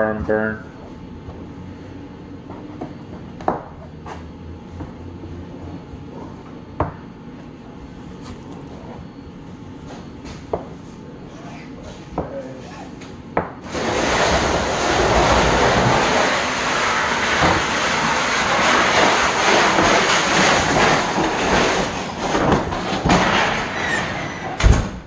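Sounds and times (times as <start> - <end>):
loud steady rushing noise: 13.7 - 21.1.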